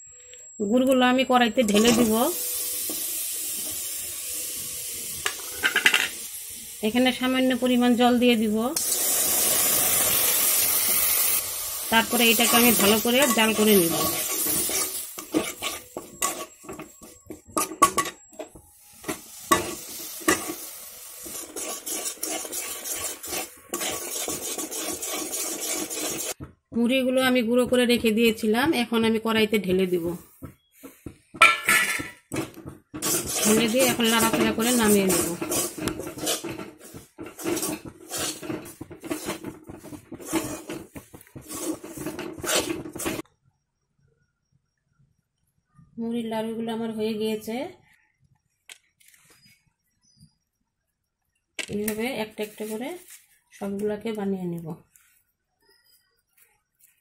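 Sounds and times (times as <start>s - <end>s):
metal spatula scraping a pan: 1.6s - 2.2s, 12.0s - 26.4s, 30.8s - 43.2s
syrup sizzling: 1.7s - 18.1s, 18.7s - 26.4s, 30.8s - 43.2s.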